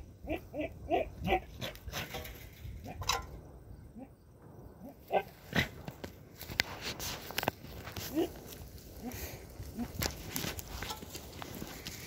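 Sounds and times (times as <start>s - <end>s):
rustling: 5.3s - 12.0s.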